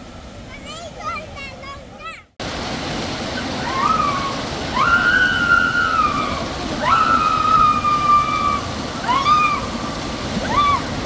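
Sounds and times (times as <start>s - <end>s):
splashing water: 2.4s - 11.0s
people yelling: 3.6s - 11.0s.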